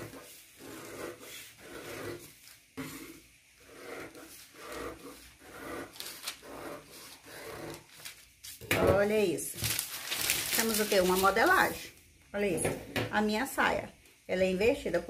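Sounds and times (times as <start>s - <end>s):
paper rustling and rubbing: 4.0s - 8.6s, 9.5s - 11.9s.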